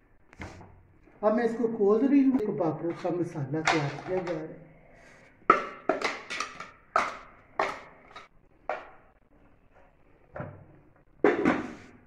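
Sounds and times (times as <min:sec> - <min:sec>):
plastic spatula knocking plastic bowl: 0:02.9 - 0:04.5, 0:05.4 - 0:09.1, 0:11.2 - 0:11.9.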